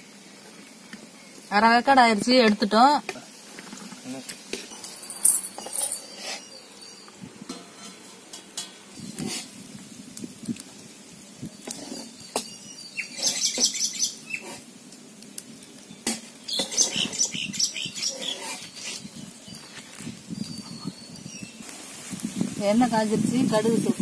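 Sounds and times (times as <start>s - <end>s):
birds chirping: 4.6s - 7.4s, 12.0s - 14.6s, 15.5s - 23.0s.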